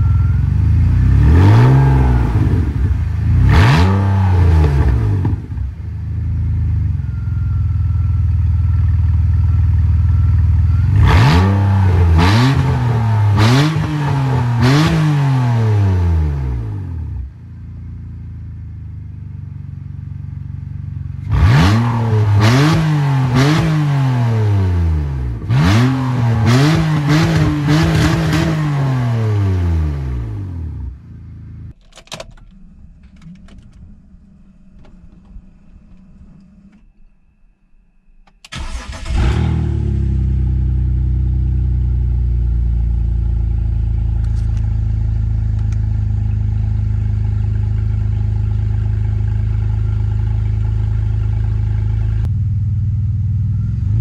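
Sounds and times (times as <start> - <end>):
car engine idling and revving: 0.0 - 54.0
engine clicks: 31.7 - 37.1, 38.2 - 39.2
engine cranking: 38.4 - 39.4.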